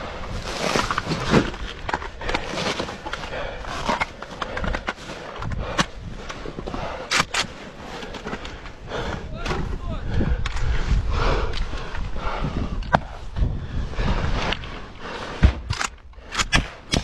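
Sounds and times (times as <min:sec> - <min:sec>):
gear and clothing rustling: 0:00.0 - 0:09.9.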